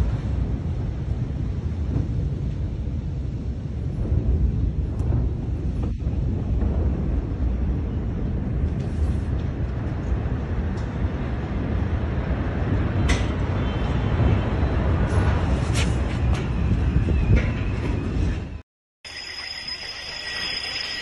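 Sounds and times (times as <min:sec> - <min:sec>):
low rumble after explosion: 0:00.0 - 0:13.2.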